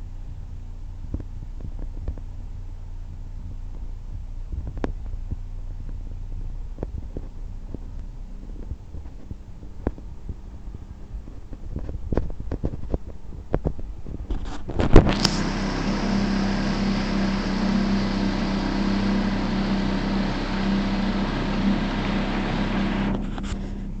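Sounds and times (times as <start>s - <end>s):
motorboat engine humming: 7.6s - 14.0s, 14.7s - 24.0s.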